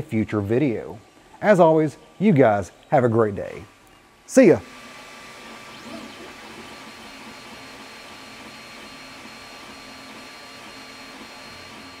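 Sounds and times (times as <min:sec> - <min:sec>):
cooling fans whining: 0:00.0 - 0:12.0
stepper motors whirring: 0:04.6 - 0:12.0.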